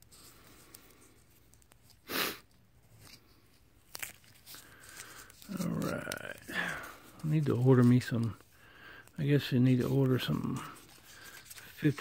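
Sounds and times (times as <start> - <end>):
paper wrapper crinkling: 0.0 - 12.0.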